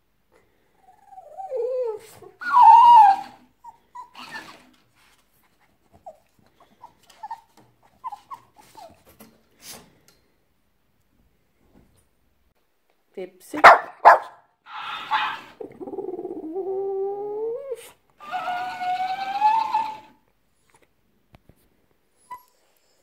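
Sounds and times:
dog whining and grumbling: 0.8s - 4.8s, 14.8s - 20.2s
toy repeating whine: 18.2s - 20.2s.

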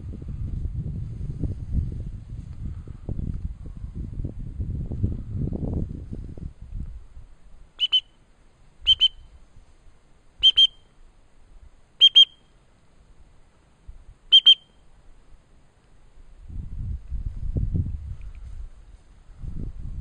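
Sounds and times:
dog whistle double blasts: 7.8s - 8.2s, 8.8s - 9.3s, 10.4s - 10.9s, 12.0s - 12.5s, 14.3s - 14.8s.

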